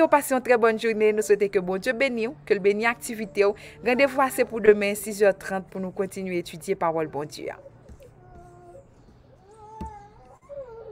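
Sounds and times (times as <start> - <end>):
faint whimpering whines: 6.9 - 10.9.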